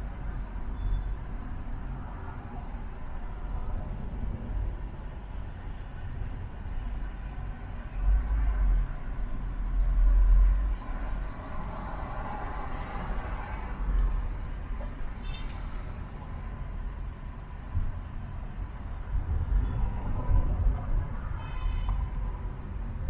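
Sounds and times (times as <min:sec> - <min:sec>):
low road rumble: 0:00.0 - 0:23.0
passing vehicles: 0:00.0 - 0:23.0
faint high squeaks: 0:15.1 - 0:16.0.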